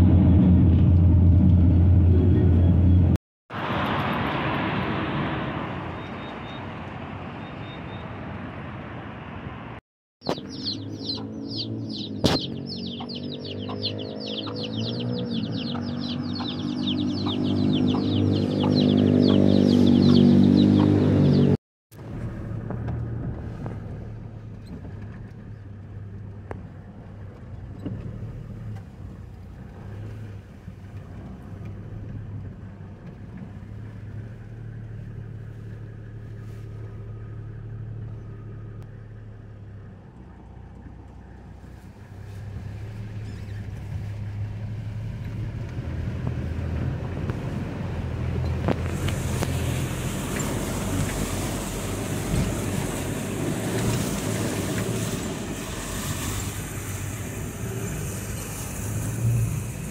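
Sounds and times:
vehicle passing on road: 0:00.0 - 0:59.9
chicks peeping: 0:10.2 - 0:21.5.

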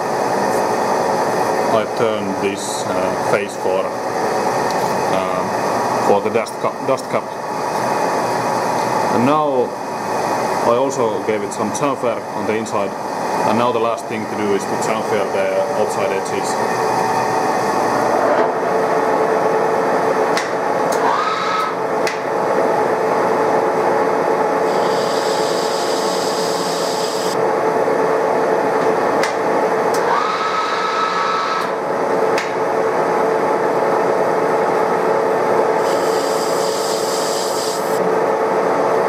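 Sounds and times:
lathe whining: 0:24.6 - 0:27.4, 0:35.8 - 0:38.0
hissing metal cutting: 0:35.8 - 0:37.9.

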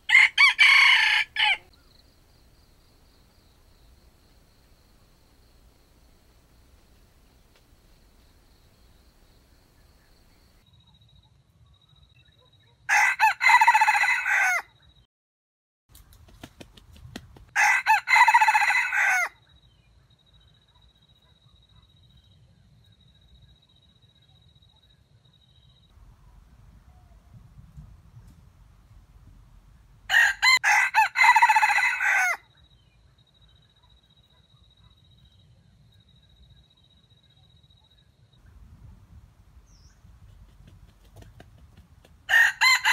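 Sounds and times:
rooster crowing: 0:00.0 - 0:01.8, 0:12.9 - 0:14.7, 0:17.6 - 0:19.4, 0:30.1 - 0:32.4, 0:42.3 - 0:42.9.

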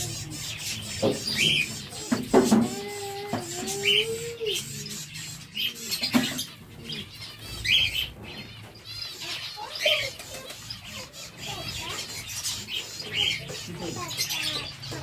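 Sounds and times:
finches chirping: 0:00.0 - 0:15.0.

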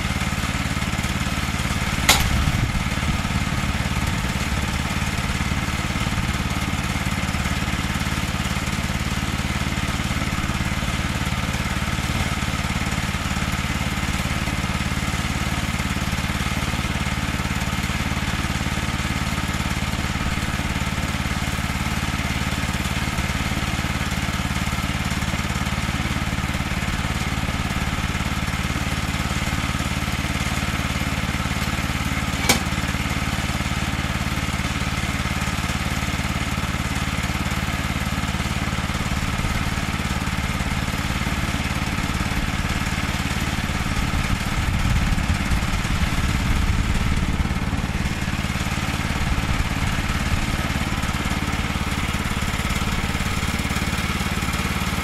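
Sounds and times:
small engine idling: 0:00.0 - 0:55.0
sharp click: 0:02.1 - 0:02.5, 0:32.4 - 0:32.8.

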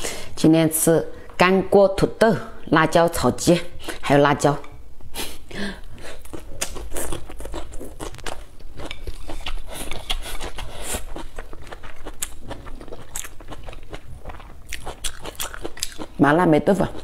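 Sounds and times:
chewing crunchy chili pepper: 0:06.0 - 0:17.0.

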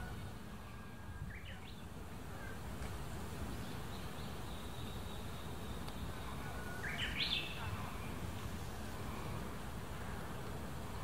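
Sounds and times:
bird chirps: 0:03.9 - 0:07.7.

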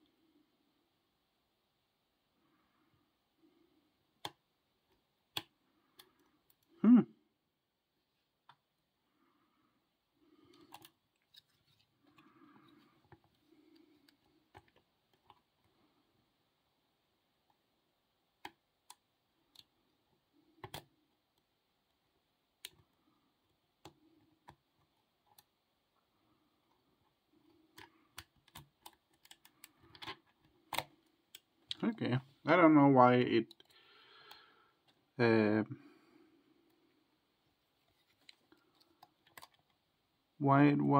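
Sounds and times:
soft handling noise: 0:10.2 - 0:16.3, 0:36.5 - 0:39.9.

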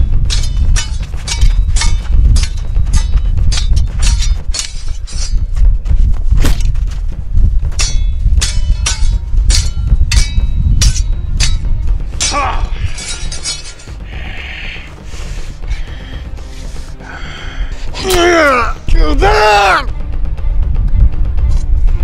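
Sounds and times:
swords clashing: 0:00.0 - 0:05.5, 0:07.8 - 0:14.0, 0:18.0 - 0:18.6
heavy low rumble: 0:00.0 - 0:22.0.

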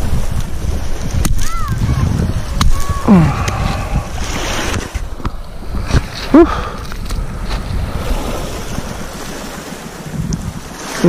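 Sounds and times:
surf: 0:00.0 - 0:11.0
wind buffeting microphone: 0:00.0 - 0:11.0
person's rising vocal sound: 0:03.0 - 0:04.2.

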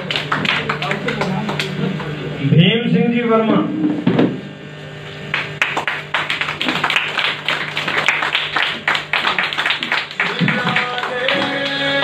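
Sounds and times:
audience clapping: 0:00.0 - 0:02.1, 0:05.3 - 0:12.0.

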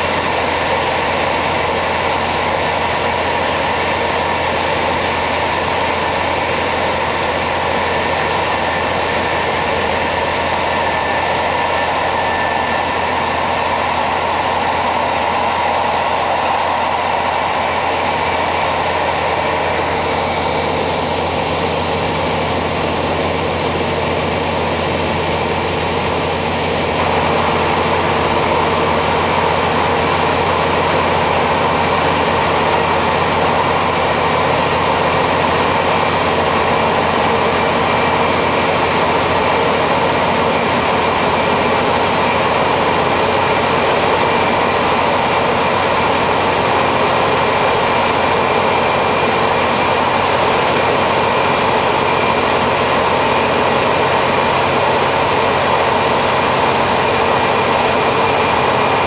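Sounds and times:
diesel railcar engine drone: 0:00.0 - 0:59.0.

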